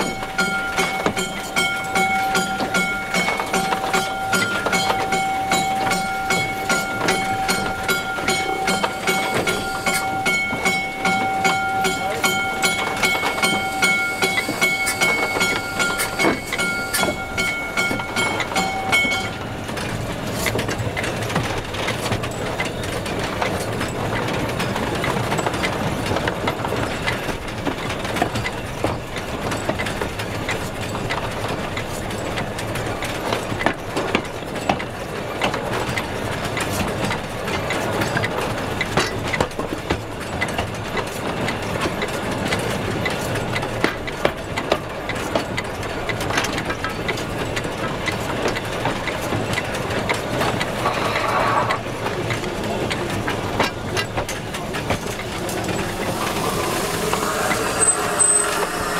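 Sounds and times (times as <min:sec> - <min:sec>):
train wheels rattling on track: 0:00.0 - 0:58.9
steam locomotive whistle: 0:55.3 - 0:58.9.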